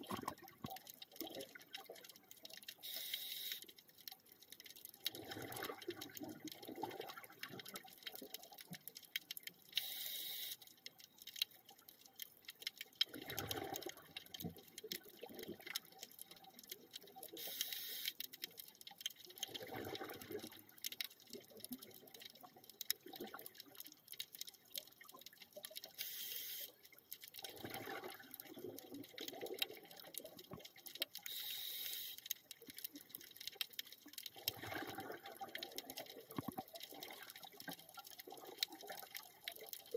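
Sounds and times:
exhaled air bubbling: 0.0s - 3.5s, 4.9s - 8.7s, 12.8s - 18.0s, 19.3s - 24.0s, 27.4s - 39.9s
regulator hissing inhale: 31.3s - 32.2s.

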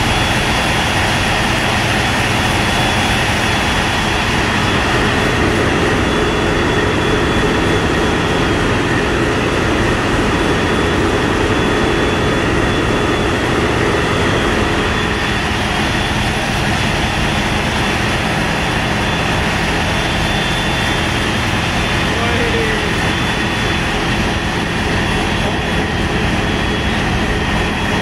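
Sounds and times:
ship diesel engines droning: 0.0s - 28.0s.

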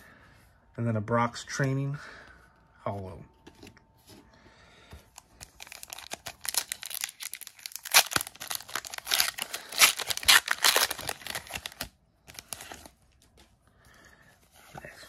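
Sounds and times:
foil wrapper tearing and crinkling: 5.4s - 12.8s.

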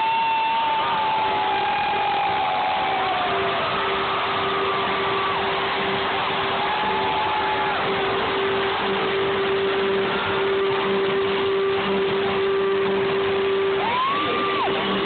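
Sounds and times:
crowd cheering and screaming: 0.0s - 15.0s.

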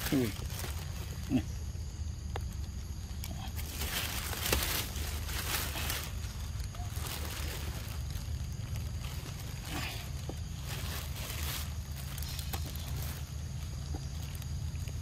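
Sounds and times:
rustling of fruit: 0.0s - 15.0s.

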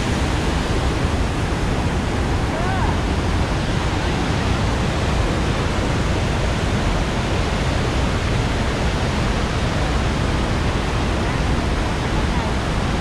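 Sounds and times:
rapids rushing: 0.0s - 13.0s
waterfall roaring: 0.0s - 13.0s.

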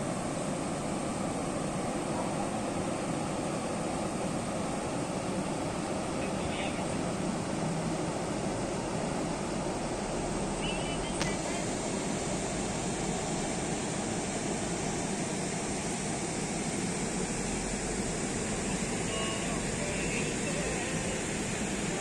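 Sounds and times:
small click: 11.2s - 11.4s.

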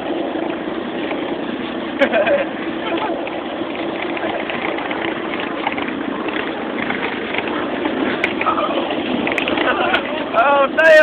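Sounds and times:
vehicle engine and road noise: 0.0s - 11.0s
rattles and knocks: 2.9s - 10.2s.

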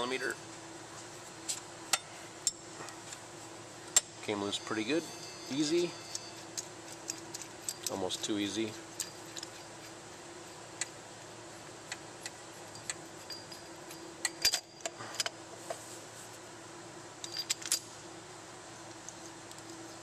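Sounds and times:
faint steady hum: 0.0s - 20.0s
metallic clinks of tools: 4.0s - 8.3s, 12.7s - 15.4s, 17.2s - 17.9s.

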